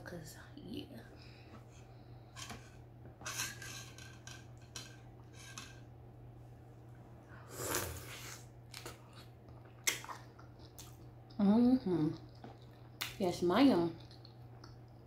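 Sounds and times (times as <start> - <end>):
wet bite and chewing: 7.7 - 11.4, 12.1 - 13.2.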